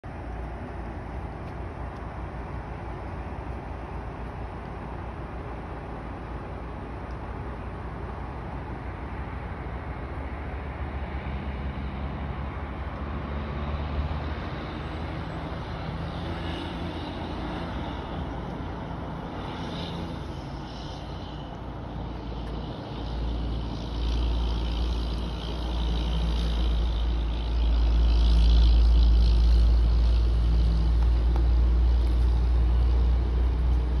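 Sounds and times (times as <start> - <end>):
steady low rumble: 0.0 - 13.4, 17.0 - 34.0.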